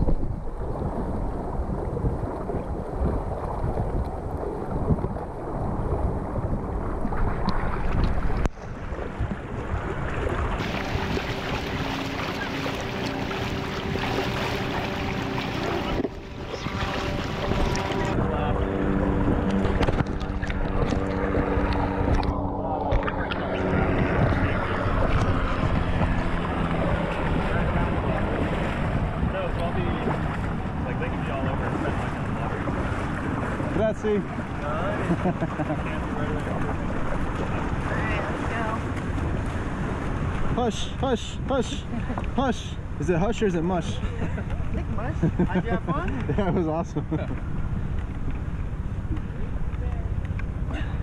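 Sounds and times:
wind buffeting microphone: 0.0s - 40.6s
water splashing: 0.0s - 41.0s
shallow surf: 0.0s - 51.0s.

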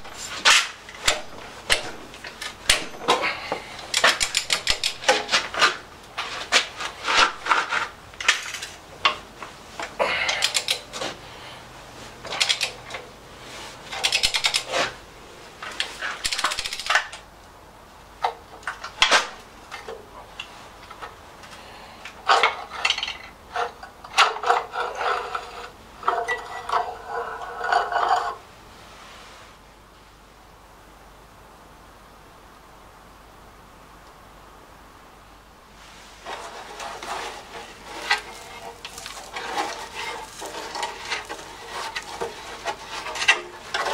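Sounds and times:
metal clinks and scraping: 22.3s - 28.4s, 36.2s - 43.9s.

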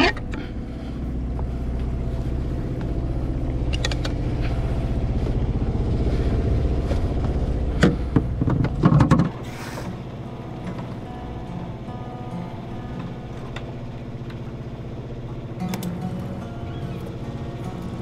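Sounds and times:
boat engine running: 0.0s - 18.0s
rigging hardware clicks: 3.7s - 4.2s
soft background music: 10.0s - 18.0s.

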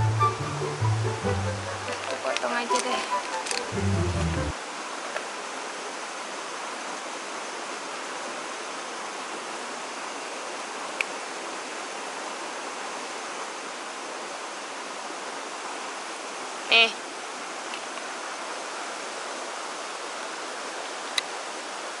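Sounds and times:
steady rushing background noise: 1.7s - 4.6s.

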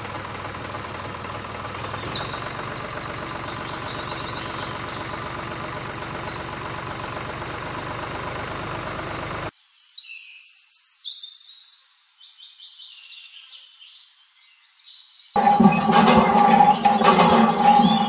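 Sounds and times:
motor chugging: 0.0s - 9.5s, 15.4s - 18.0s
birds chirping: 0.8s - 7.9s.

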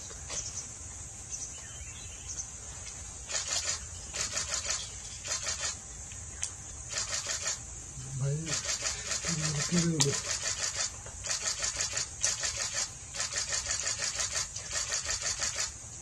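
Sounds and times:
high-pitched insect drone: 3.2s - 5.8s, 6.8s - 16.0s
rapid rattling pulses: 3.3s - 5.8s, 6.9s - 15.8s.

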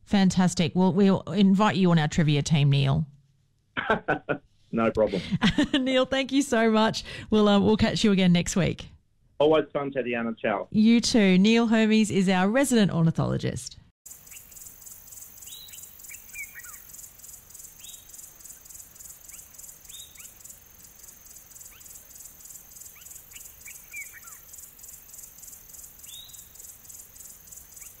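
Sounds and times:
bird chirps: 14.1s - 28.0s
insects pulsing: 14.1s - 28.0s.

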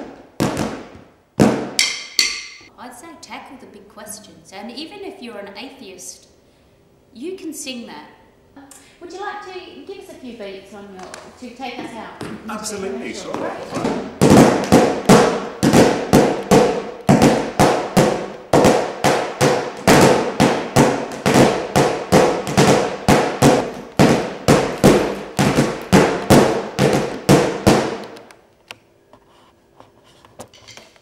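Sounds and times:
large drum beating: 13.7s - 28.0s.

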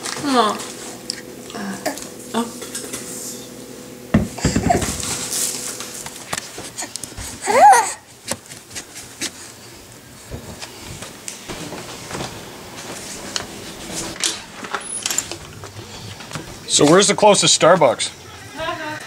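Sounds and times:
baby squealing: 7.4s - 8.0s.

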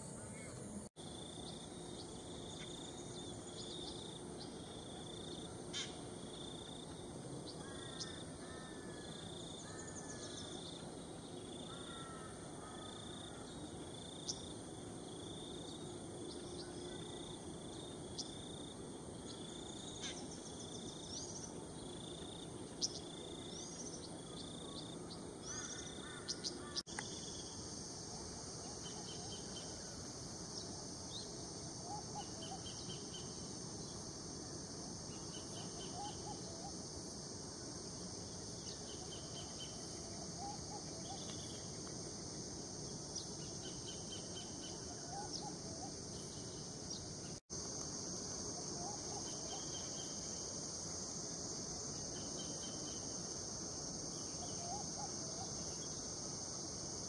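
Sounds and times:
high insect drone: 0.0s - 57.0s.

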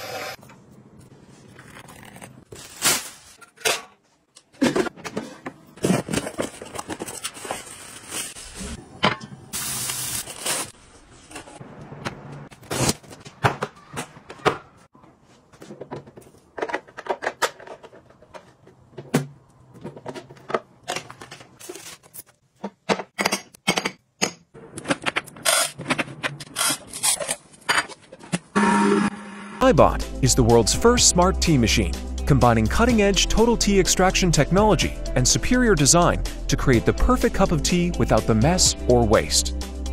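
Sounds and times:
plastic containers clicking and knocking: 15.6s - 21.6s.

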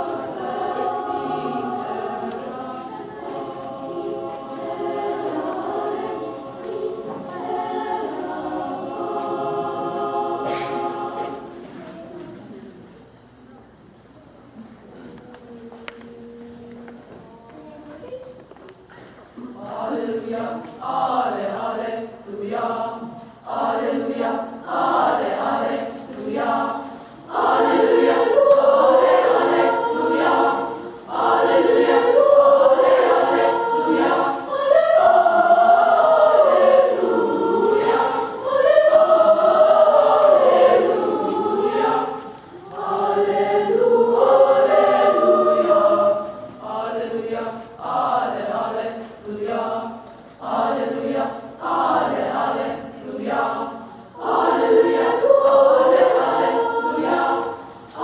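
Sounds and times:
choir singing a cappella: 0.0s - 12.6s, 19.4s - 58.0s.

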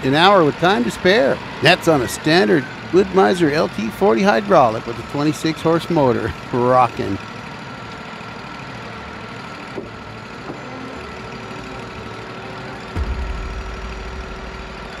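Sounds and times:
sawmill engine idling: 0.0s - 15.0s
deep low rumble: 13.0s - 15.0s.

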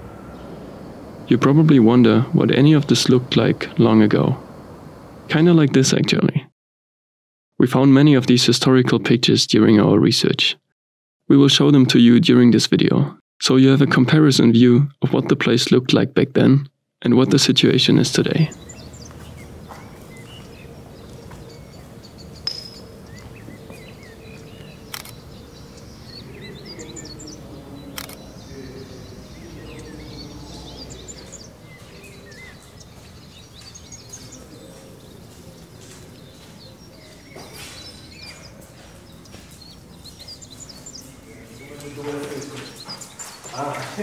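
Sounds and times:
small birds chirping: 17.3s - 44.0s
sharp clicks: 24.6s - 25.4s, 27.9s - 28.3s.

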